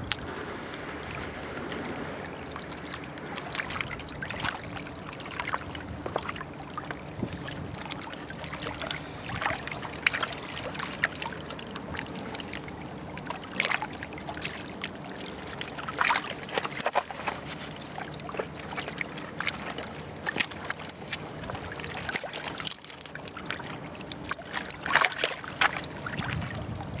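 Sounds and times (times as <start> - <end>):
river water lapping on stones: 0.0 - 27.0.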